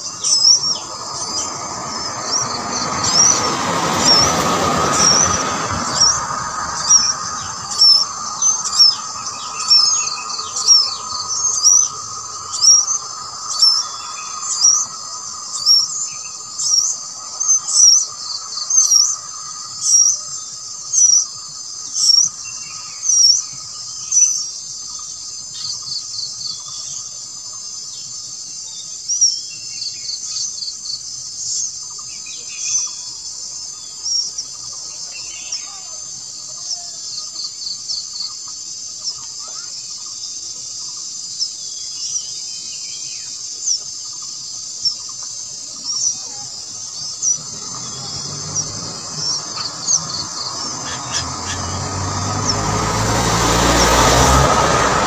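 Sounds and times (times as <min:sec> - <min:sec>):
high insect chorus: 0:00.0 - 0:55.0
high-pitched bird chirps: 0:04.0 - 0:21.2.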